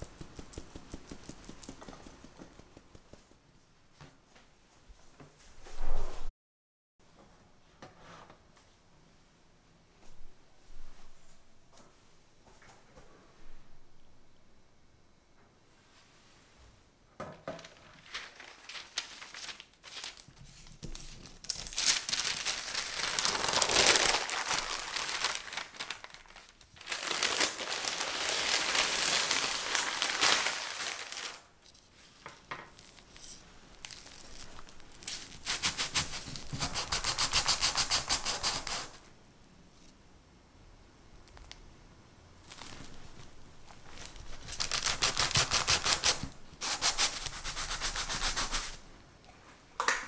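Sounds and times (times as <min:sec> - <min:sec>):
parchment paper crinkling: 0:00.0 - 0:03.3, 0:17.6 - 0:39.0, 0:42.4 - 0:48.0.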